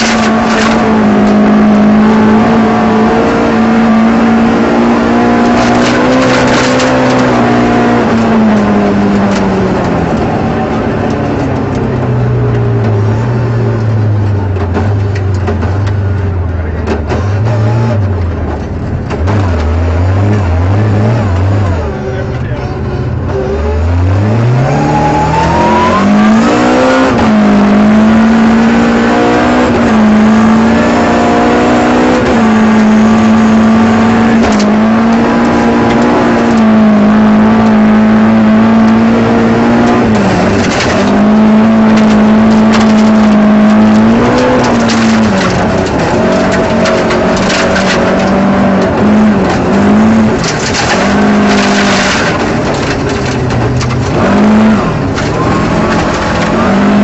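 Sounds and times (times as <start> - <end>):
rally car engine revving: 0.0 - 57.0
gravel clattering against car: 5.4 - 7.5, 39.8 - 57.0.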